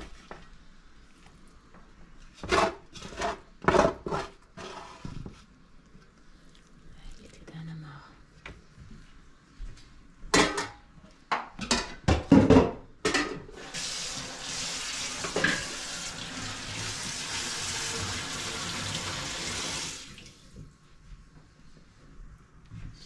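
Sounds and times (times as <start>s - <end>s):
kitchen tap running: 13.5s - 20.6s.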